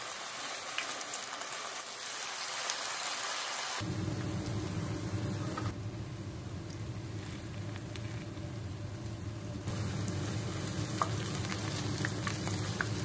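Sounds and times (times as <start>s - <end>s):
pancakes sizzling in oil: 0.0s - 3.8s, 6.6s - 13.0s
low steady rumble: 3.8s - 13.0s.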